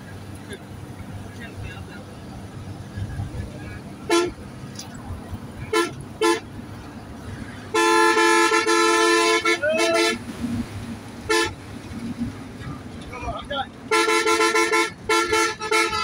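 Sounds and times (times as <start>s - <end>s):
low road rumble: 0.0s - 16.0s
two-note vehicle horn honking: 7.7s - 10.2s, 13.9s - 16.0s.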